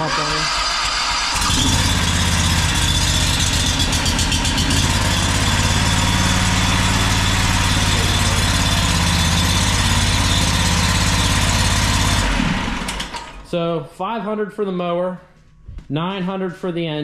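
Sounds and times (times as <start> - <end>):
mower engine idling: 0.0 - 13.4.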